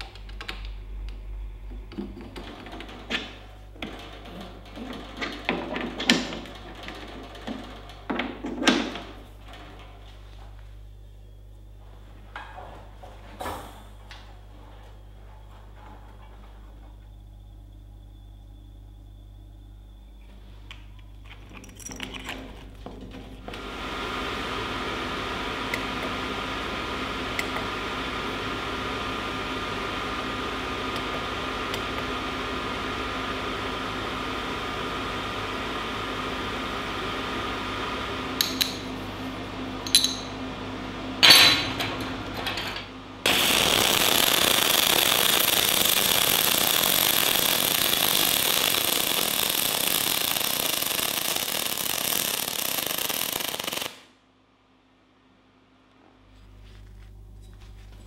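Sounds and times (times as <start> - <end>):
welding arc crackling: 23.5 - 39.1, 43.2 - 54.2.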